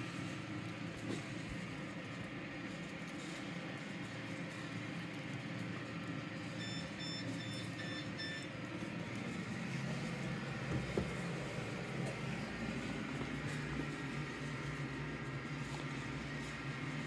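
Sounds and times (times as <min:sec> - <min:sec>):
short electronic beeps: 0:06.6 - 0:08.5.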